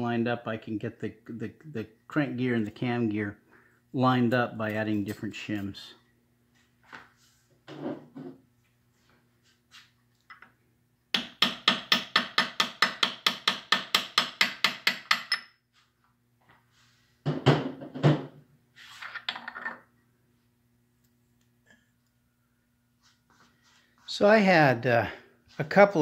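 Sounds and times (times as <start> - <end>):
hammer tapping metal punch: 11.1 - 15.6.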